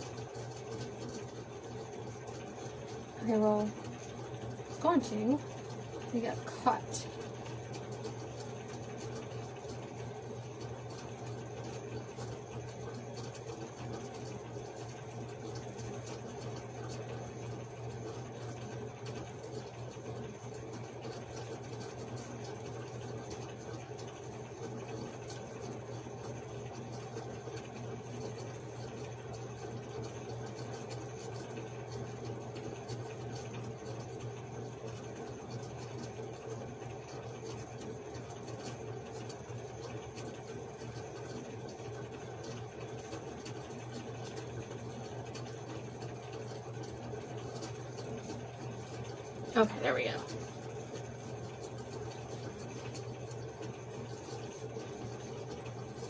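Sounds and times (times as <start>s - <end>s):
room background hum and hiss: 0.0s - 56.0s.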